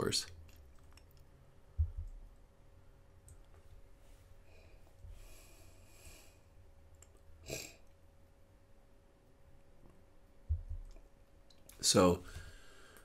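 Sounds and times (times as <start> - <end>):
soft breath: 4.0 - 6.6, 12.2 - 13.0.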